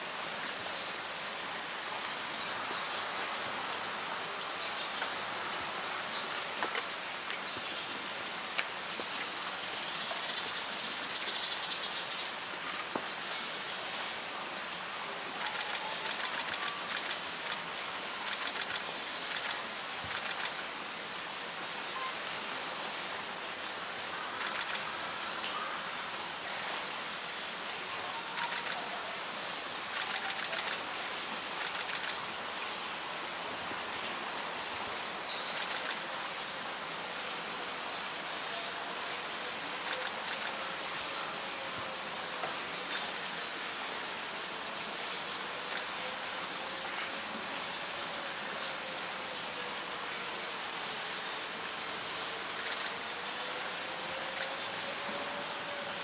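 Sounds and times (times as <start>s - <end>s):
rapid clicking bursts: 15.5s - 17.6s, 18.3s - 20.6s, 31.6s - 32.1s.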